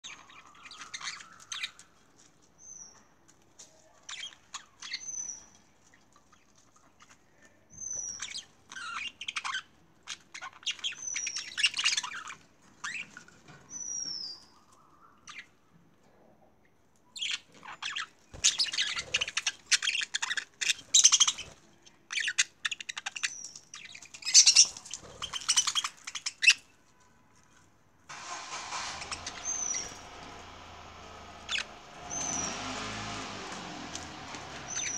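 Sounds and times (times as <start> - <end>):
budgerigars chattering: 17.2 - 26.6, 28.9 - 33.3, 34.0 - 34.9
whistled calls sliding down: 28.2 - 34.9.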